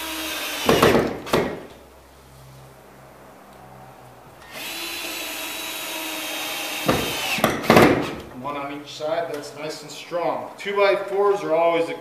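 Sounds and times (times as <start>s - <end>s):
cordless drill whining: 0.0s - 1.4s, 4.4s - 7.7s.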